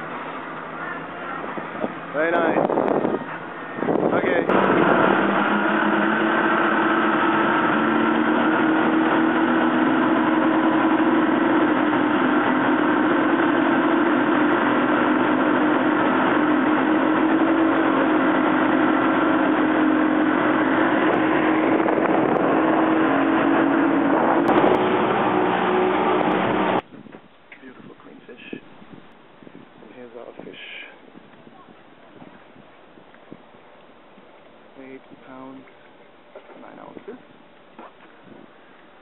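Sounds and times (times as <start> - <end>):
outboard motors running: 0.0 - 27.0, 27.6 - 39.0
wind: 0.0 - 39.0
water rushing: 3.1 - 26.8.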